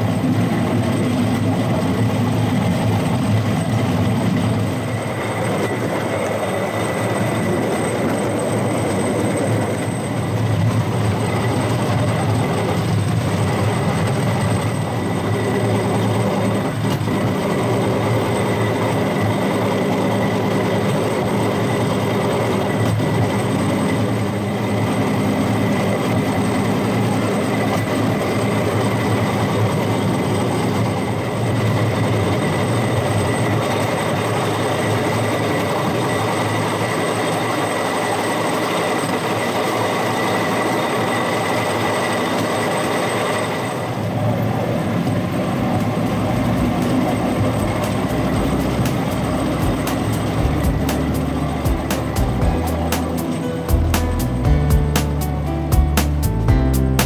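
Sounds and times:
wheels rolling on rails: 0.0s - 56.2s
low motor hum: 44.3s - 57.0s.

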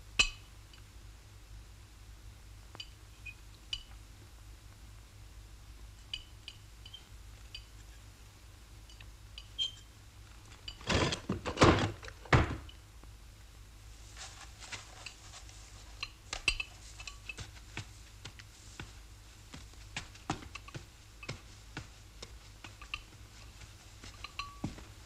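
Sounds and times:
knocks and thuds: 10.9s - 12.7s
cutlery clinking on a plate: 16.0s - 17.4s.

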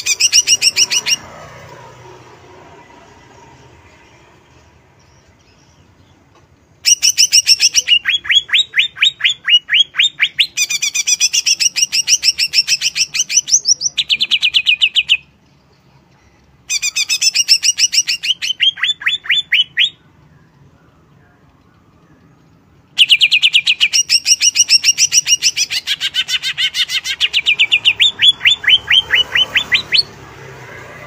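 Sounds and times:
bird singing fast chirps: 0.0s - 1.3s, 6.8s - 15.4s, 16.7s - 22.2s, 22.9s - 30.9s.

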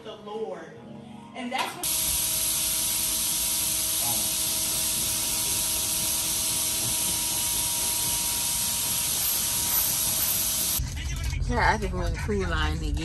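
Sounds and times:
carpet cleaner motor whine: 1.8s - 10.8s
loud suction hiss: 1.8s - 10.8s.

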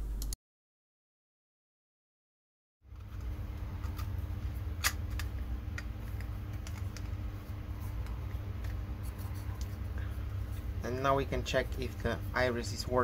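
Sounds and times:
steady low hum: 2.9s - 13.0s
plastic parts clicking and tapping: 4.8s - 7.2s.

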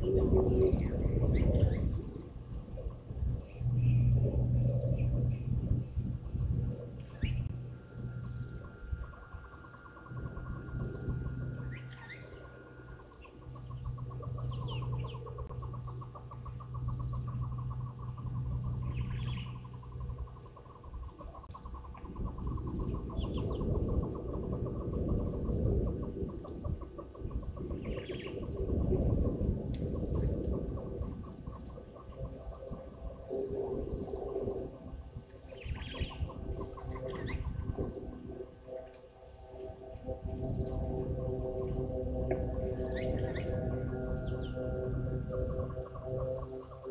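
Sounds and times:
crickets chirring: 0.0s - 46.9s
low pulsing insect trill: 0.0s - 46.9s
low rumbling noise: 0.0s - 46.9s.

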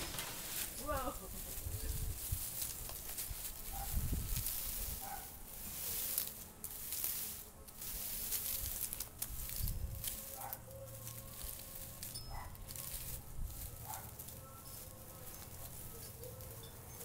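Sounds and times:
low bumps: 0.0s - 0.8s
dry plant stalks rustling: 0.0s - 17.0s.

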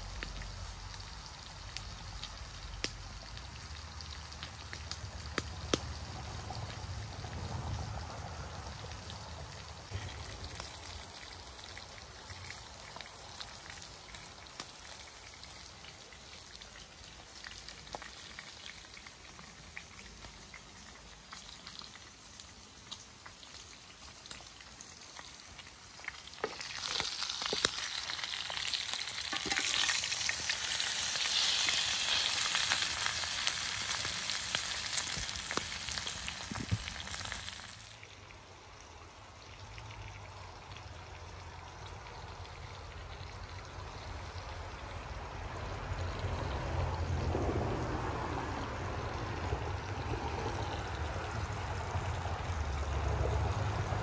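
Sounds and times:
steak sizzling in a skillet: 17.3s - 38.0s.

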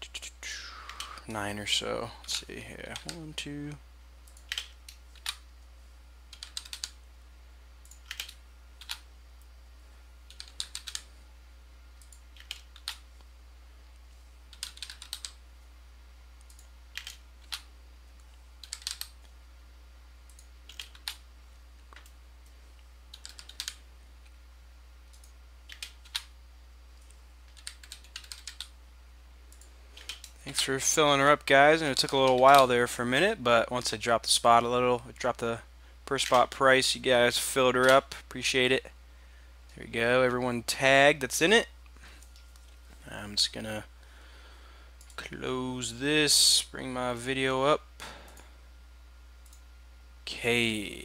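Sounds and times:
computer keyboard typing: 4.2s - 5.4s, 6.3s - 7.0s, 7.8s - 9.0s, 10.3s - 11.1s, 12.0s - 13.0s, 14.5s - 15.4s, 16.4s - 17.7s, 18.6s - 19.2s, 20.3s - 21.2s, 23.1s - 23.8s, 25.1s - 26.3s, 27.0s - 28.7s, 29.5s - 30.4s.

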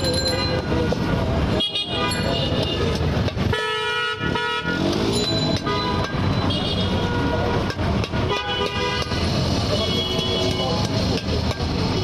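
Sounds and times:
street traffic noise: 0.0s - 12.0s
vehicle horns honking: 0.6s - 10.8s.

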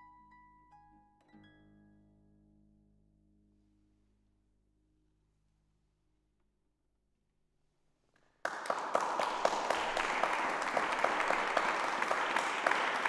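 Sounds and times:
audience applause: 8.4s - 13.0s.

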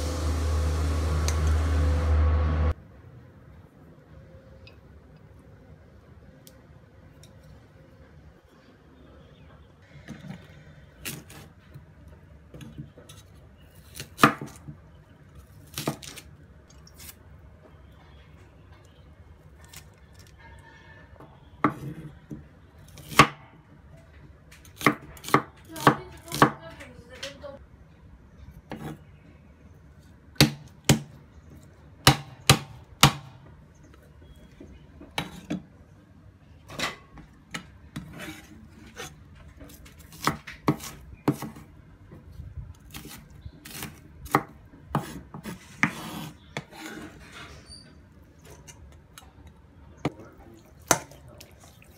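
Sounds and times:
cleaver chopping on wooden board: 32.1s - 33.3s.

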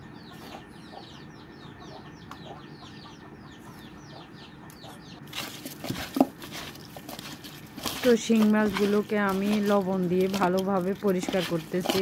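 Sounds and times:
birds chirping: 0.0s - 12.0s
wet rubbing and squelching: 5.2s - 12.0s.

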